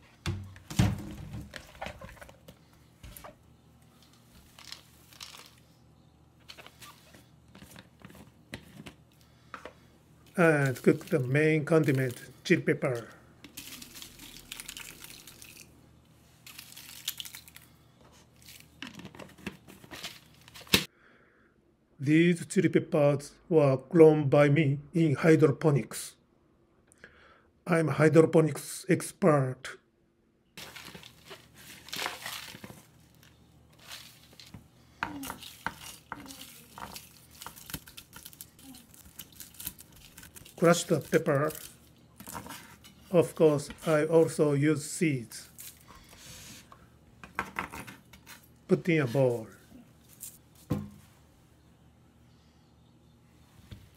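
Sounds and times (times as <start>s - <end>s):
dried chili peppers rattling: 4.4s - 5.6s, 30.6s - 42.6s.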